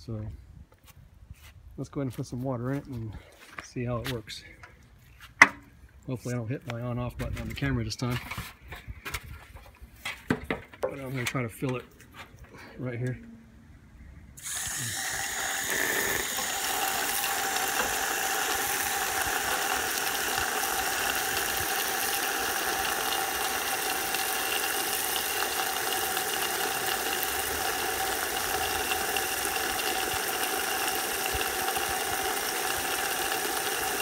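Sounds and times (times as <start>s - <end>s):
water pouring into pipe: 14.4s - 34.0s.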